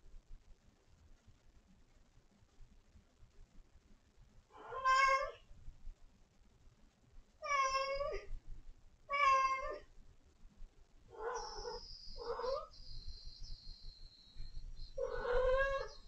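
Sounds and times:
cat meowing: 4.6s - 5.4s, 7.4s - 8.3s, 9.1s - 9.9s, 11.1s - 12.7s, 15.0s - 16.0s.

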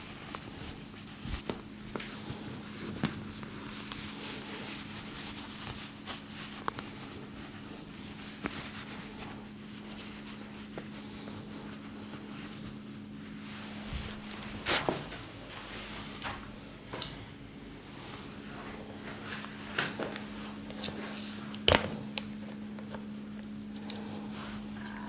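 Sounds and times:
hands rubbing hair: 0.0s - 16.4s
steady low hum: 0.0s - 25.0s.

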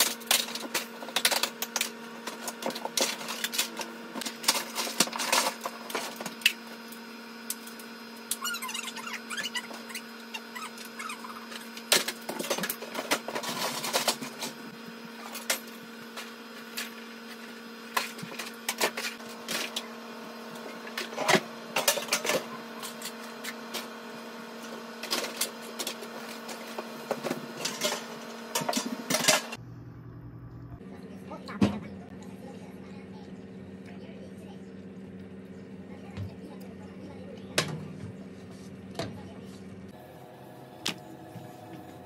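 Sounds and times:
plastic toys clattering: 0.0s - 6.3s
low electrical hum: 0.0s - 42.0s.

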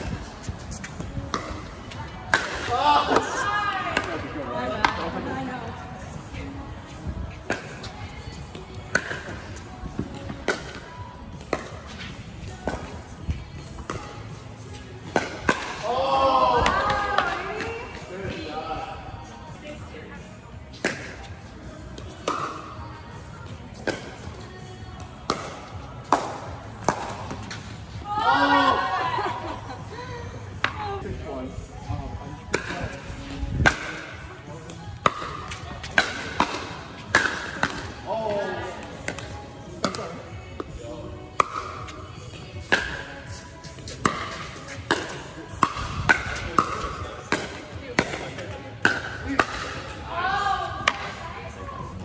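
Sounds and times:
paddles hitting pickleball: 0.9s - 5.2s, 25.2s - 27.6s, 33.6s - 34.1s, 35.0s - 38.0s, 41.4s - 41.9s, 42.6s - 43.1s, 43.8s - 50.0s, 50.8s - 51.2s.

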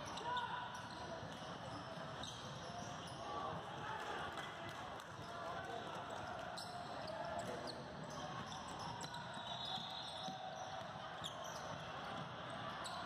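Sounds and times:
sneakers squeaking on floor: 0.0s - 3.3s, 6.6s - 13.0s
murmur of spectators: 0.0s - 13.0s.

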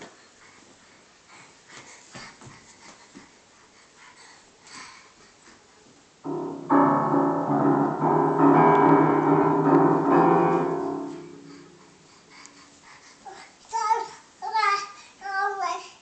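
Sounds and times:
piano keys struck together: 6.3s - 12.3s.

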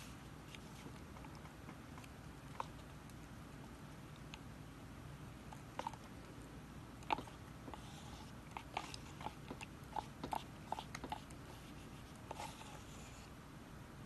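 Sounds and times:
stick stirring sticky slime: 7.0s - 13.3s.

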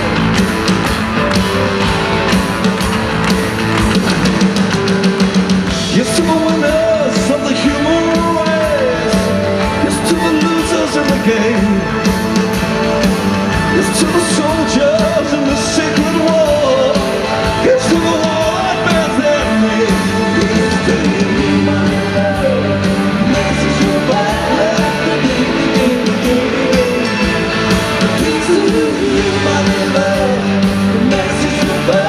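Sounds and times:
live rock band playing: 0.0s - 32.0s
person singing: 5.6s - 32.0s.

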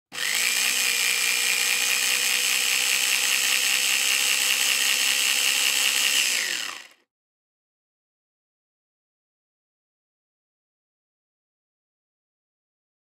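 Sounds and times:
blender motor whining: 0.1s - 7.1s.

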